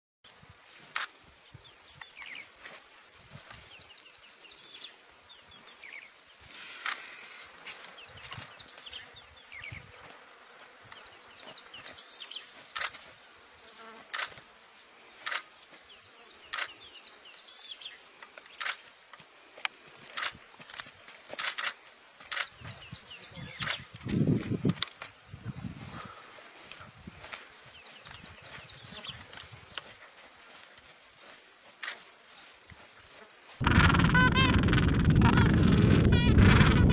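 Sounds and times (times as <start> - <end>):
faint high hiss: 0.3 - 20.6.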